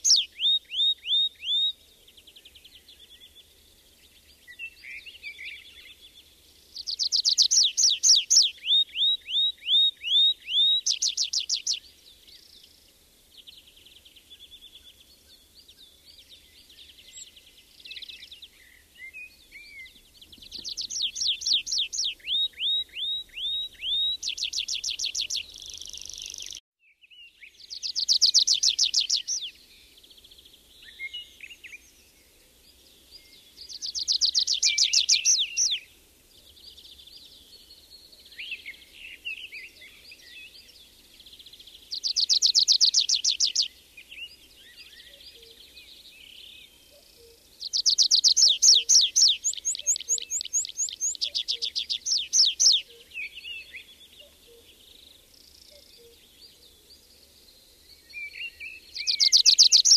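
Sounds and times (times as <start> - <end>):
songbird trilling song: 0.0 - 59.9
quiet bird warbling: 46.9 - 56.3.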